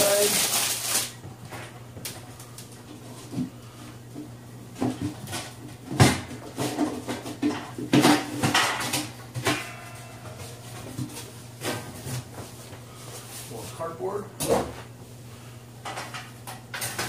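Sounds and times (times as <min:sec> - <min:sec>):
packing rustling: 0:00.0 - 0:01.2.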